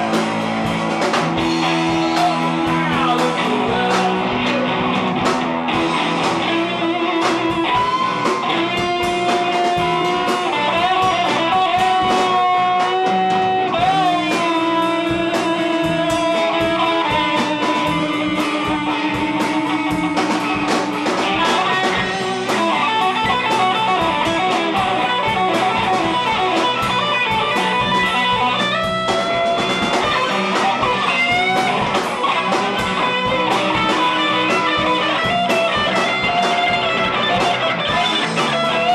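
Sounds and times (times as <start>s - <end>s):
electric guitar sustained bending notes: 0.0s - 38.9s
rock band playing: 0.0s - 38.9s.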